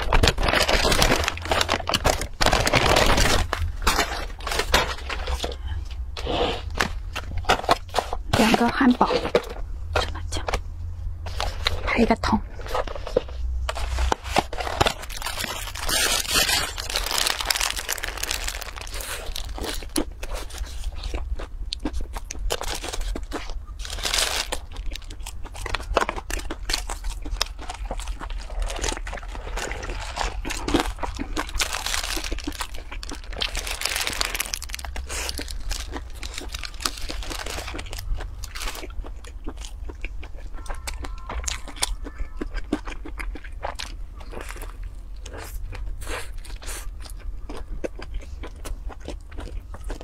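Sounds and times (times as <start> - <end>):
paper wrapper crinkling: 0.0 - 5.5, 12.6 - 21.1, 22.5 - 38.9
crunchy chewing of burger: 0.0 - 8.3, 12.5 - 50.0.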